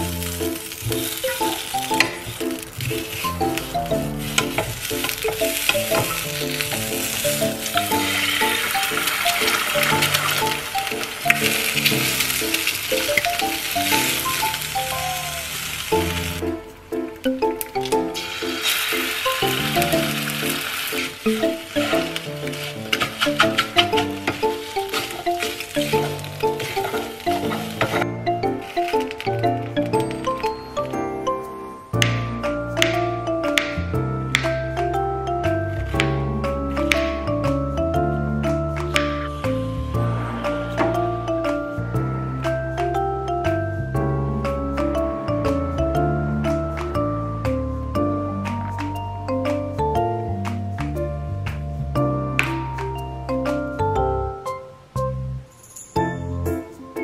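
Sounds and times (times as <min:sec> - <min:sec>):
sausages sizzling in a pan: 0:00.0 - 0:17.2, 0:17.9 - 0:31.0
light background music: 0:00.0 - 0:57.0
light melody: 0:00.0 - 0:57.0
wooden spatula scraping pan: 0:00.2 - 0:16.4, 0:18.2 - 0:29.7.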